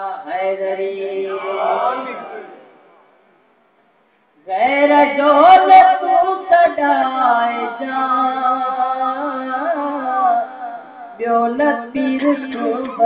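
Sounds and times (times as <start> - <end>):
man singing unaccompanied: 0.0 - 2.6, 4.4 - 13.0.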